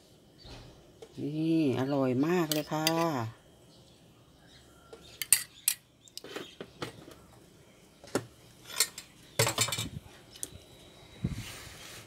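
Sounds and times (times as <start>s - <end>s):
cutlery and dishes clinking: 8.6s - 9.9s.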